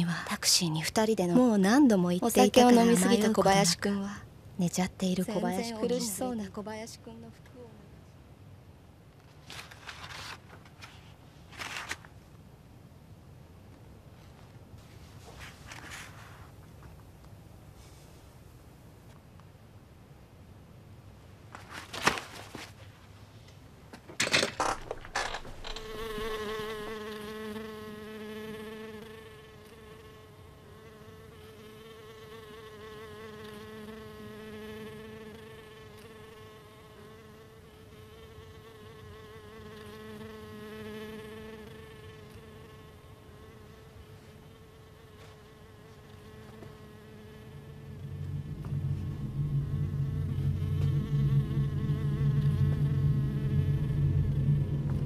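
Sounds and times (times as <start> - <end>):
sharp knocks: 24.2 - 26.4
buzzing drone: 24.9 - 28.7, 44.6 - 55.0.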